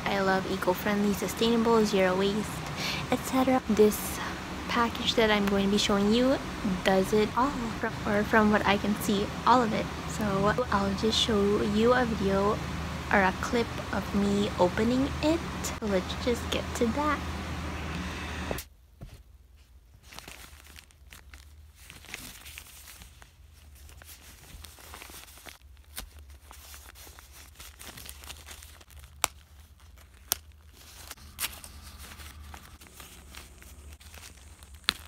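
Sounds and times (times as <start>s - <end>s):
paper rustling and tearing: 19.6s - 35.0s.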